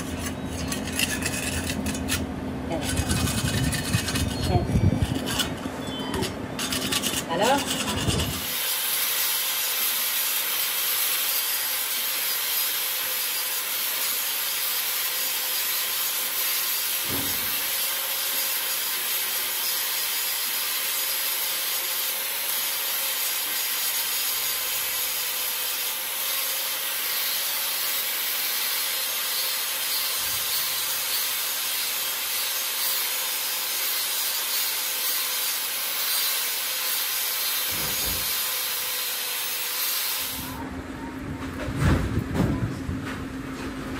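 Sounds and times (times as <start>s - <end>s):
metal knocks and scrapes: 0.0s - 8.5s, 37.7s - 38.4s
angle grinder grinding metal: 0.0s - 40.6s.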